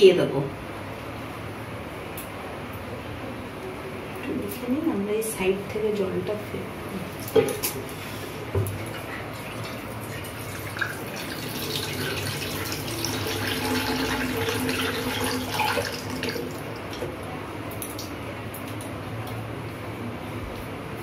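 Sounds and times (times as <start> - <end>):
water pouring into a pot: 8.9 - 17.0.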